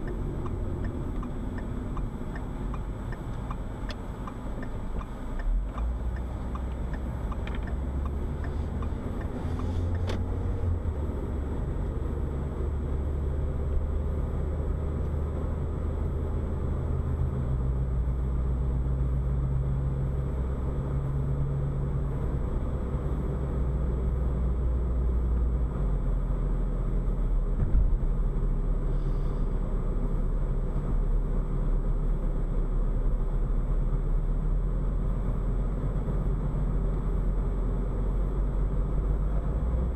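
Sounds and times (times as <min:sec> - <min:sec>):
car engine and road rumble: 0:00.0 - 0:39.9
short thump: 0:27.6 - 0:28.0.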